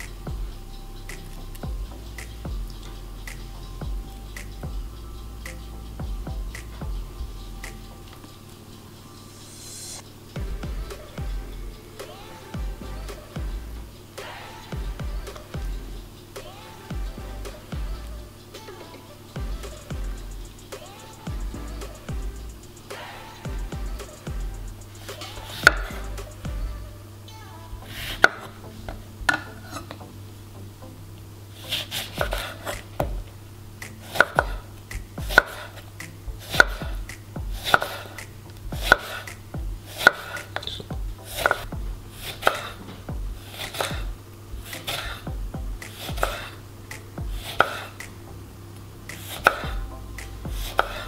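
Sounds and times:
knife slicing lemon on wooden board: 38.8s - 39.2s, 47.4s - 47.9s.

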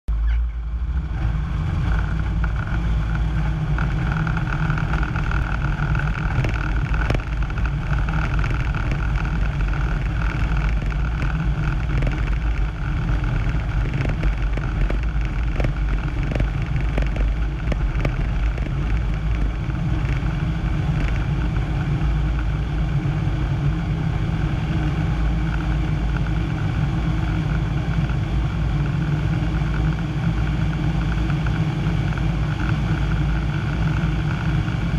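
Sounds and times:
aircraft engine and propeller: 0.1s - 34.9s
knocks and rattles: 1.8s - 21.4s.

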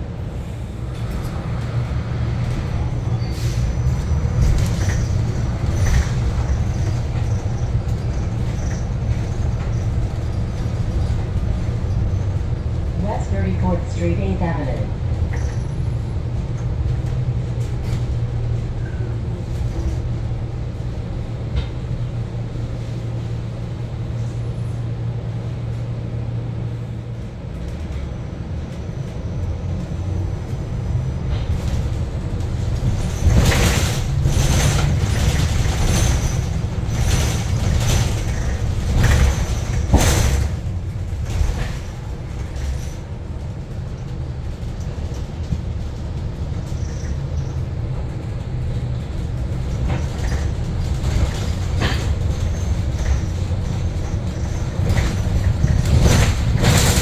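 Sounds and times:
bus cabin low hum: 0.0s - 57.0s
sharp knocks and rattles: 49.3s - 57.0s.

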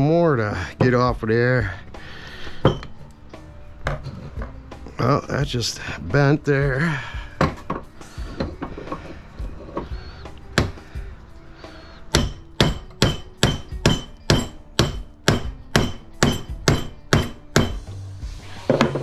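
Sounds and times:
hammer striking metal: 2.6s - 3.0s, 10.6s - 10.8s, 12.1s - 17.9s.

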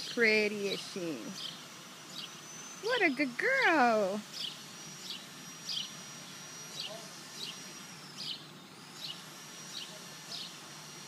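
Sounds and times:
small bird chirping: 0.0s - 3.2s, 4.3s - 10.5s.

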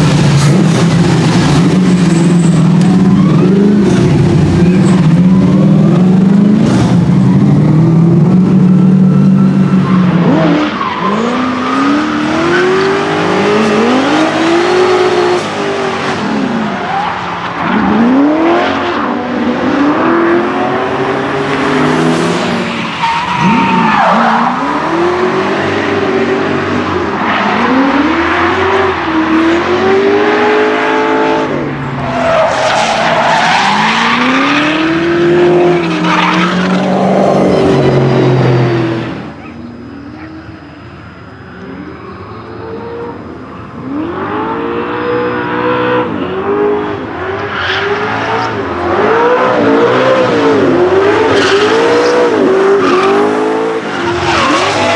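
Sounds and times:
engine revving: 0.0s - 16.7s.

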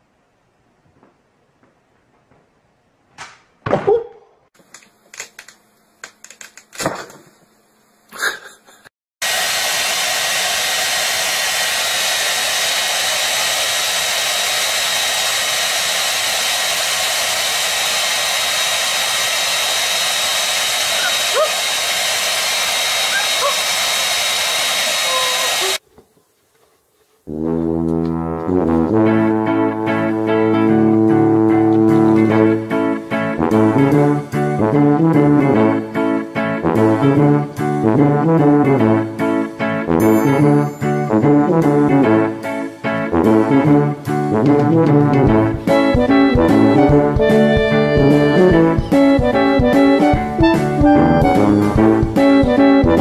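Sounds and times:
knocks and scuffs: 0.8s - 4.0s
hair dryer blowing: 9.2s - 25.8s, 45.6s - 53.0s
guitar music: 27.8s - 44.0s, 44.6s - 53.0s.

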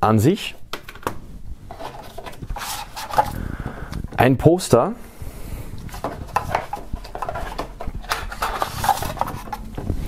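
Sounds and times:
paper rustling and scraping: 1.7s - 3.4s, 5.9s - 9.9s.

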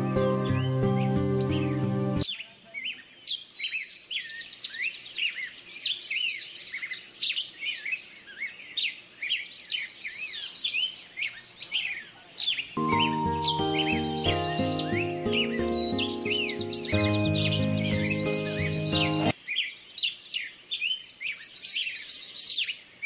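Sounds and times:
music: 0.0s - 2.2s, 12.8s - 19.4s
small birds chirping and twittering: 0.0s - 23.0s.

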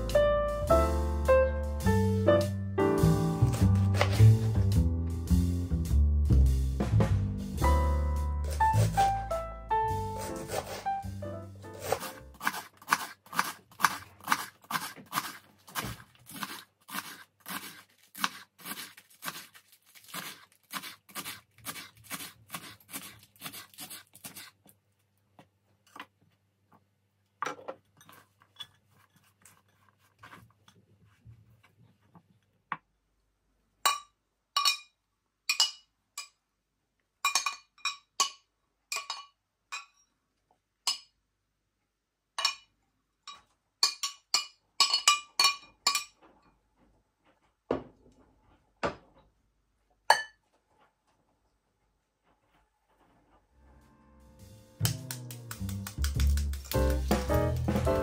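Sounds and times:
knife chopping lettuce on board: 11.8s - 24.4s
lettuce rustling: 11.8s - 24.7s
metal spoon clinking glass bowl: 33.9s - 36.4s, 37.2s - 40.1s, 42.4s - 42.7s, 43.3s - 46.2s.

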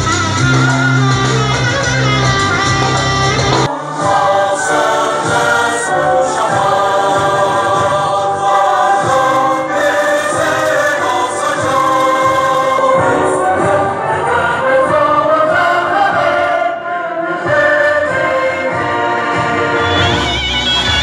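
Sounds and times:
instrumental backing: 0.0s - 21.0s
choir singing: 2.8s - 21.0s.

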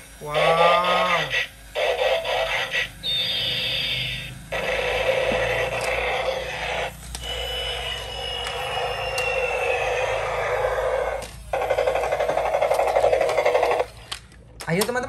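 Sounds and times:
toy motor whirring: 0.0s - 15.0s
tinny electronic toy sound effects: 0.2s - 14.2s
falling whistle-like tone: 8.0s - 10.7s.

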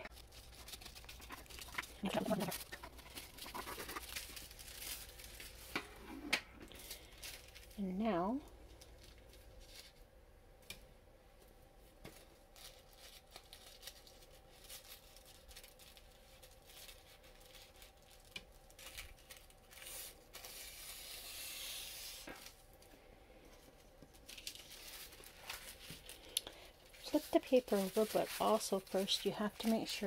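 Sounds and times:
tissue paper rustling: 0.0s - 5.8s, 6.7s - 7.8s, 11.8s - 22.6s, 24.1s - 30.0s.

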